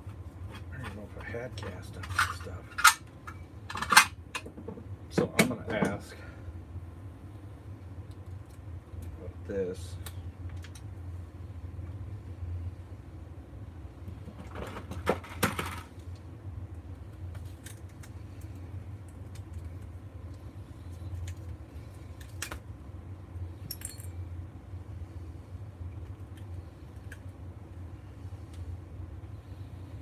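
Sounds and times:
steady low hum: 0.0s - 30.0s
small parts clinking on wood: 23.6s - 24.2s.

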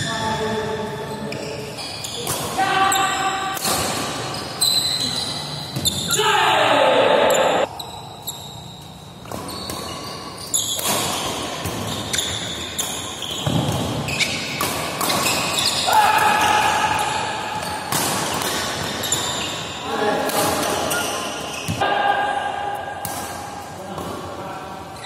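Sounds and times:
shoes squeaking on court: 0.0s - 6.2s, 7.3s - 19.8s, 20.6s - 21.8s
racket hitting shuttlecock: 9.2s - 19.4s.

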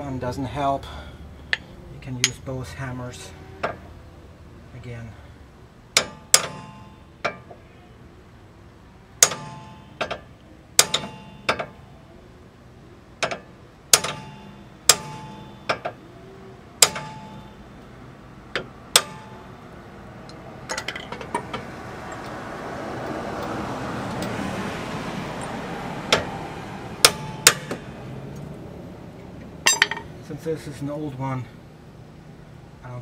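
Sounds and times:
hammer striking steel: 6.0s - 7.5s, 9.2s - 11.8s, 13.2s - 16.0s, 16.8s - 17.6s, 18.6s - 19.5s, 27.0s - 27.9s, 29.7s - 30.1s
broad rush of noise: 6.8s - 33.0s.

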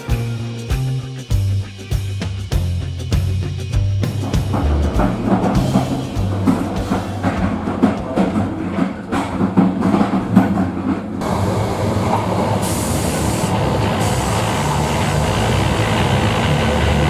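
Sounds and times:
drum-heavy music: 0.0s - 11.2s
train rumble and hiss: 4.0s - 17.0s.

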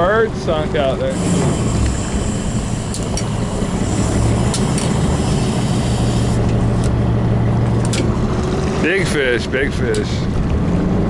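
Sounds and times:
boat engine humming: 0.0s - 11.0s
wind: 0.0s - 11.0s
water noise: 1.1s - 9.0s.

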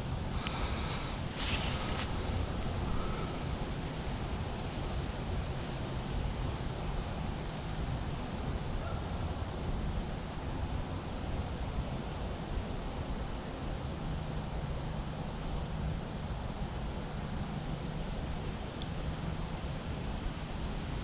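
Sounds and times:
outdoor rushing hiss: 0.0s - 5.2s.

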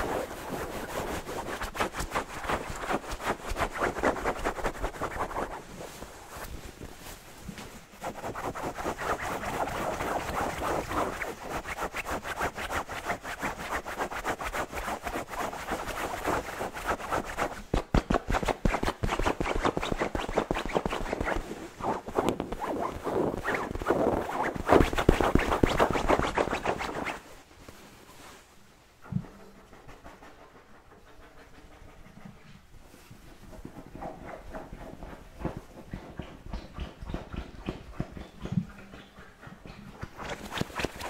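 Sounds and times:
fingernails scratching fabric: 0.0s - 6.5s, 8.0s - 27.2s, 40.2s - 41.0s.

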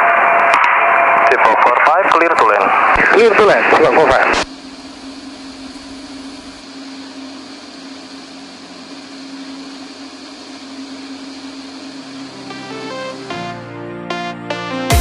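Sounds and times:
light aircraft engine droning: 2.7s - 14.2s
music: 12.2s - 15.0s.

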